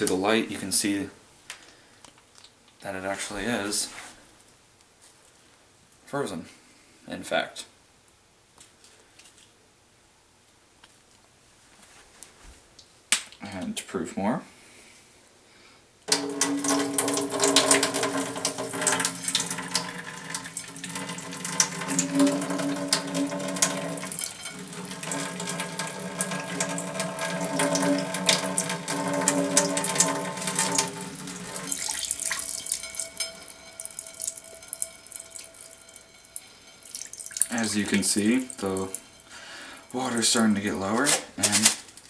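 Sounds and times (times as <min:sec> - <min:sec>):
water splashing into metal sink: 0:16.1 - 0:41.7.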